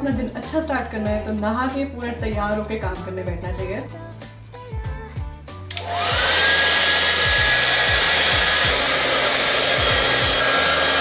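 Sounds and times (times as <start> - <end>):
hair dryer blowing: 5.7 - 11.0.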